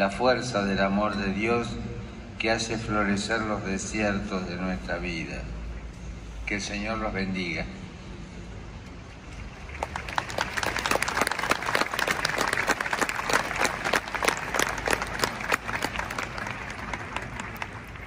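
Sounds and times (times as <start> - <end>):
crowd applauding: 9.4 - 18.0.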